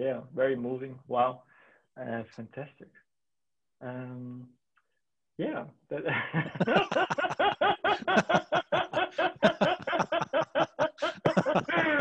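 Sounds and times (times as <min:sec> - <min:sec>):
men laughing heartily: 0:06.0 - 0:12.0.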